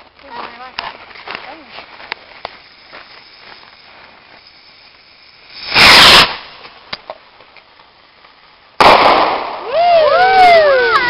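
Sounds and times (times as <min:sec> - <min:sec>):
rocket motor blast: 0:05.6 - 0:06.6, 0:08.8 - 0:09.7.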